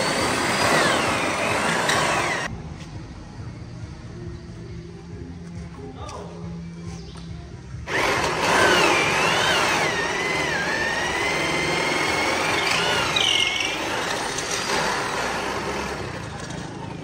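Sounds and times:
electric drill motor whine: 0.0 - 2.5, 7.9 - 16.4.

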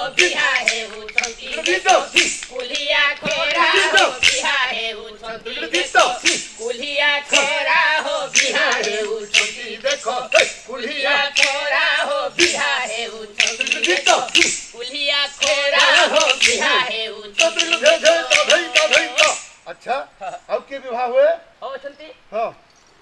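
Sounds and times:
wooden clappers clicking: 0.0 - 19.6
man chanting: 16.0 - 19.5.

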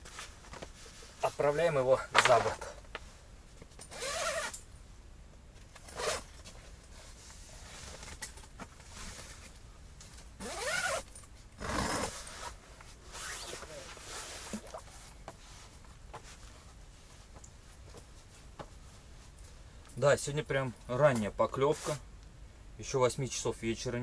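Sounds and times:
zipper rasping: 3.9 - 4.6, 5.9 - 6.3, 10.4 - 14.8
fabric rustling: 11.8 - 19.6.

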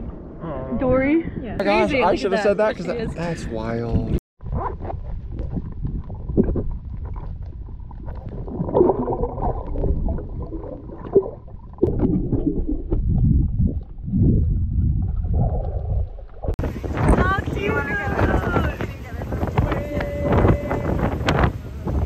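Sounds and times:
underwater gurgling and bubbles: 4.4 - 17.1.

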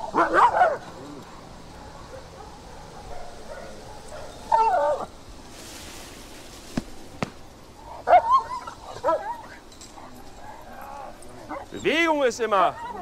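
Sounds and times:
dog yelping barks: 0.0 - 5.1, 8.0 - 9.6.

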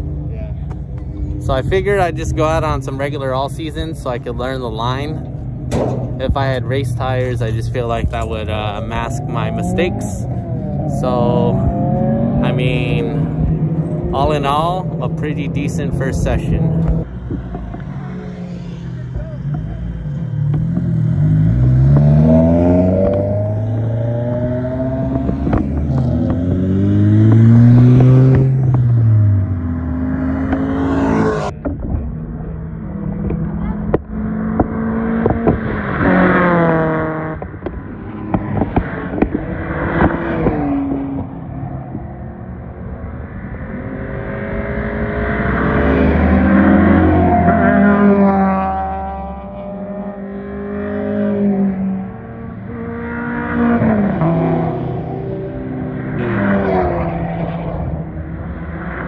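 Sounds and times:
car engines revving away: 0.0 - 59.0.

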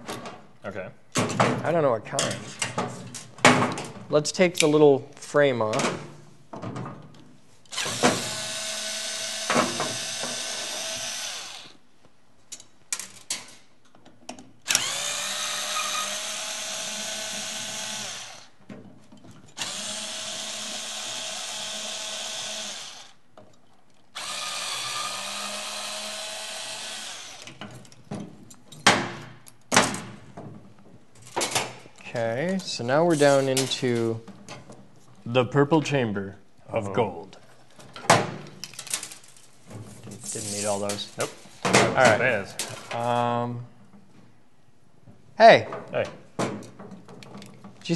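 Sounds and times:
cordless drill running: 7.7 - 11.8, 14.7 - 18.6, 19.6 - 23.2, 24.2 - 27.6
clicks and clatter of parts: 12.5 - 14.9, 37.5 - 42.0, 46.0 - 47.9.

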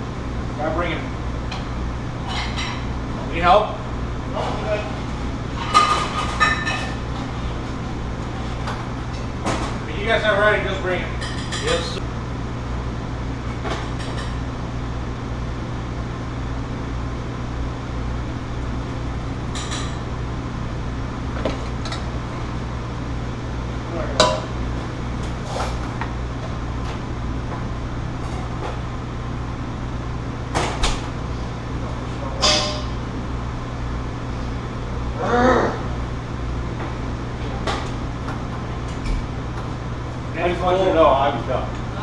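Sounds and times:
low hum of ventilation: 0.0 - 42.0
pans and plates clinking: 32.4 - 32.9.

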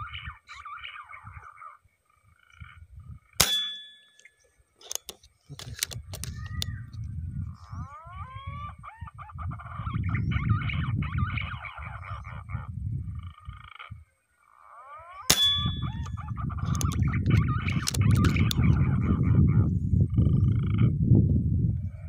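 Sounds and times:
rifle shot: 3.4 - 3.9, 15.3 - 16.1
pigeons whistling calls: 15.2 - 17.8.

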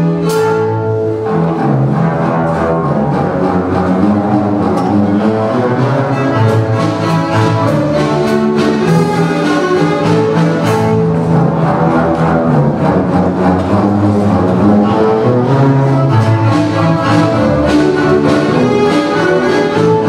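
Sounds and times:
double basses bowing chords: 0.0 - 20.0.

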